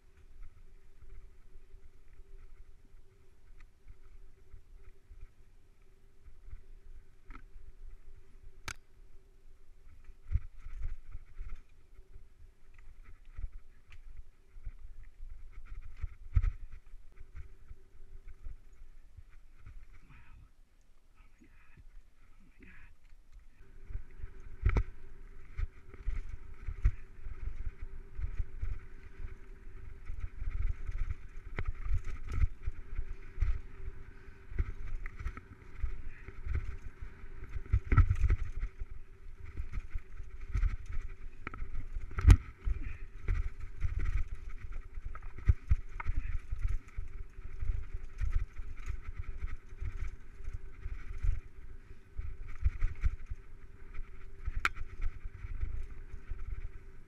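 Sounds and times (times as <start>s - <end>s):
bike rumbling over rough trail: 23.6s - 57.0s.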